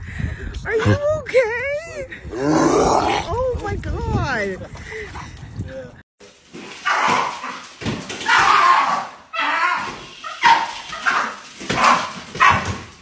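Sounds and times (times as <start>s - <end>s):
dog barking and whining: 10.4s - 12.8s.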